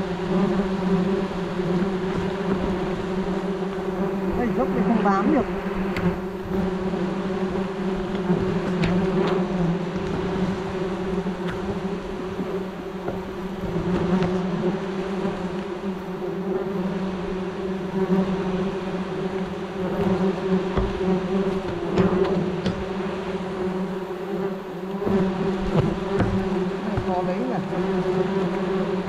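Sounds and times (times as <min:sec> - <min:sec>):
wasps buzzing: 0:00.0 - 0:29.0
short knocks: 0:25.7 - 0:27.3.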